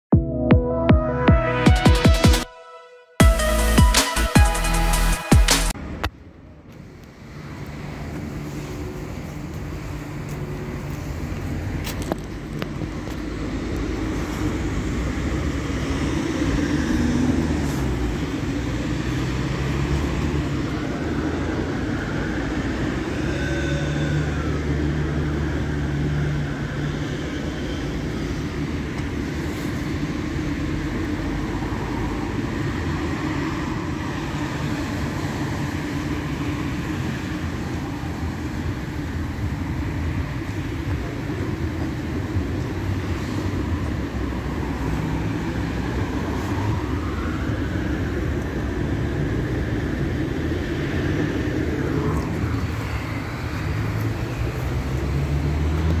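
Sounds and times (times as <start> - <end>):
car wash motors humming: 5.9 - 23.2.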